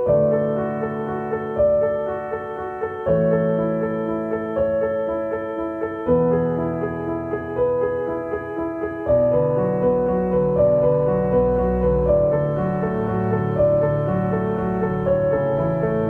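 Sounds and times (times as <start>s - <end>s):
keyboard instrumental music: 0.0s - 16.0s.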